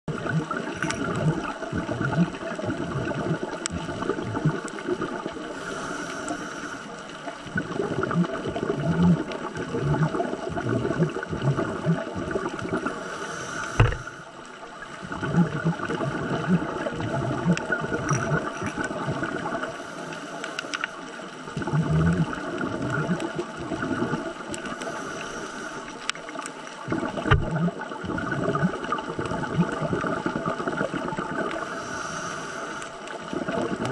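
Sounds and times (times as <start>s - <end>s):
bubbling gurgles of exhaled air: 0.1s - 33.9s
regulator hissing inhales: 5.5s - 7.0s, 12.9s - 14.3s, 19.7s - 21.0s, 24.8s - 26.1s, 31.6s - 33.1s.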